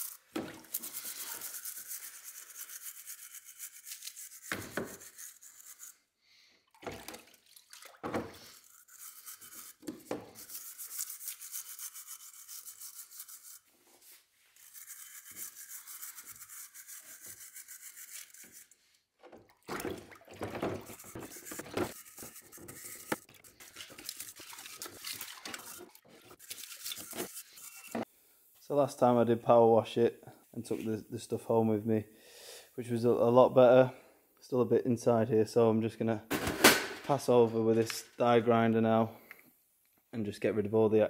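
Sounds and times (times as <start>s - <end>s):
metal tool scraping under water: 20.4s - 28.1s.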